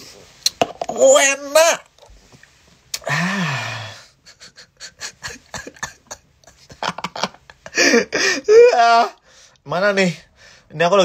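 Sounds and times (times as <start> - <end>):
man breathy sigh: 3.0 - 4.2.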